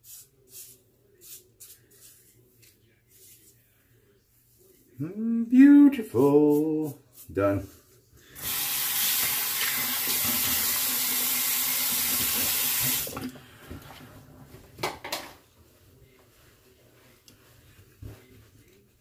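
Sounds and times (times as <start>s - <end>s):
sink faucet running: 8.4s - 13.3s.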